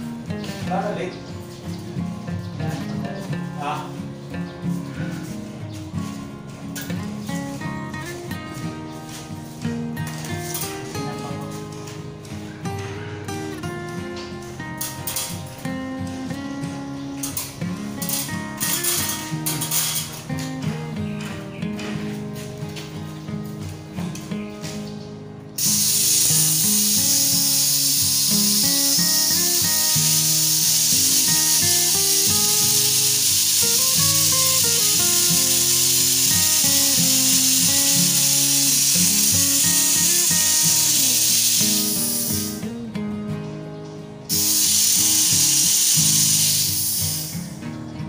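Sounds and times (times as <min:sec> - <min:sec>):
pressurised gas venting hiss: 0:06.8 - 0:20.6, 0:25.4 - 0:42.8, 0:44.3 - 0:47.6.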